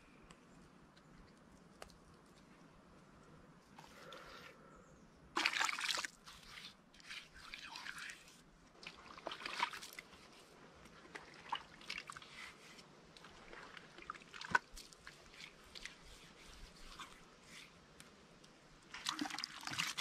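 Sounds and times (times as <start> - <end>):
wet clay squelching: 5.4 - 18.0.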